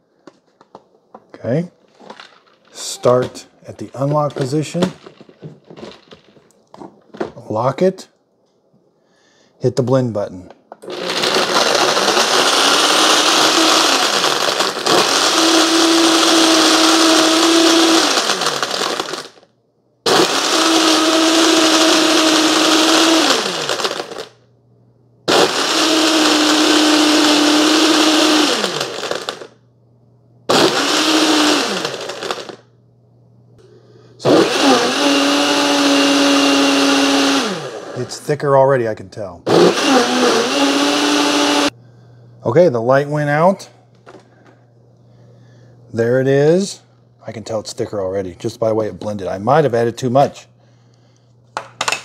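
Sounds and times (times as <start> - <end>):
blender crushing ice: 2.0 - 6.5, 10.8 - 19.5, 20.1 - 24.4, 25.3 - 29.6, 30.5 - 32.7, 34.2 - 38.2, 39.5 - 41.7.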